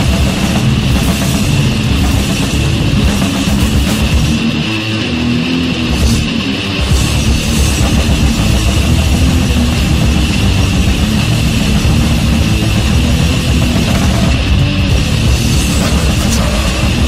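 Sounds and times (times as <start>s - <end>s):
death metal music: 0.0s - 17.0s.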